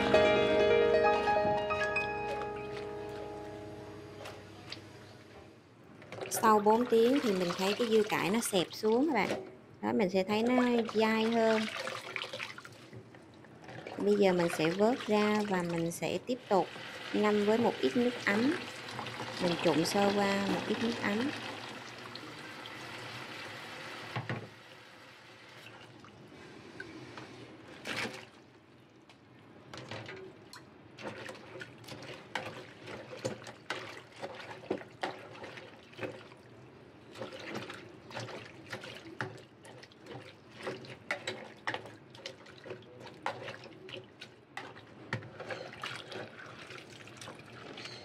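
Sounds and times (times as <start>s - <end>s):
tap water running into basin: 6.1s - 9.4s, 10.5s - 13.1s, 13.7s - 24.3s.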